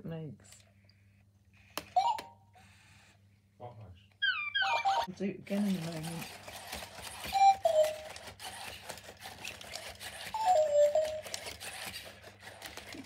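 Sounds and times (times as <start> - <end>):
toy robot dog electronic chirps: 4.2 - 5.1, 7.2 - 8.1, 10.2 - 11.5
robot motors clicking and whirring: 5.5 - 13.0.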